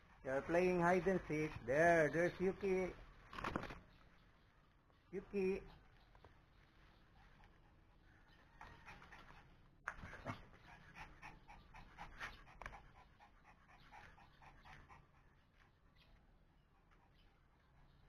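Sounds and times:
dog panting quickly: 0.0s - 2.6s, 7.0s - 18.0s.

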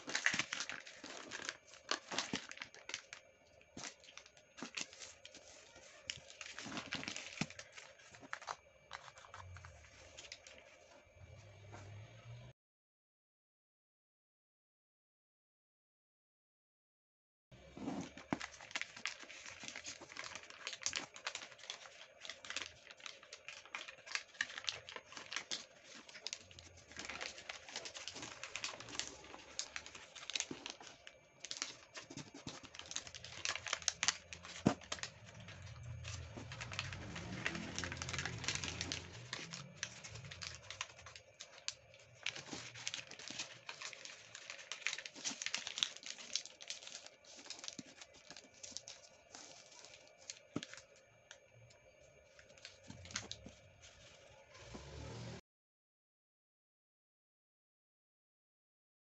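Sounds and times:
paper rustling and crinkling: 0.0s - 11.0s, 17.7s - 51.0s, 52.2s - 55.1s.

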